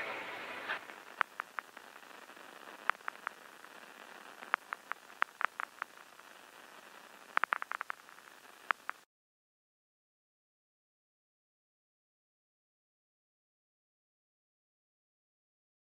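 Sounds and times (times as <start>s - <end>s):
low steady hiss: 0.0s - 9.1s
sharp clicks and pops: 0.5s - 9.1s.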